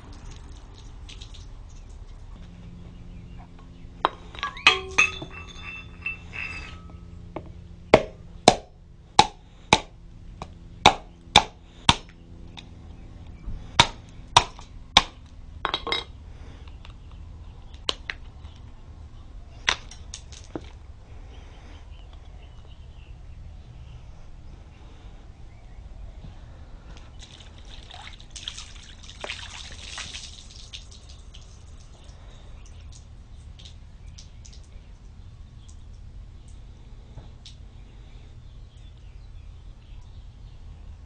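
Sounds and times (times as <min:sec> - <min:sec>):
hammer knocking coconut shell: 0:08.0 - 0:09.9.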